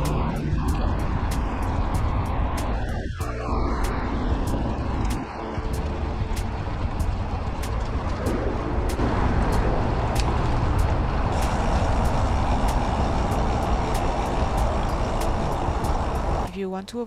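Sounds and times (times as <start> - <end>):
cars passing on road: 0.0 - 16.5
wind rushing over microphone: 0.0 - 16.5
light regular ticks: 4.4 - 16.5.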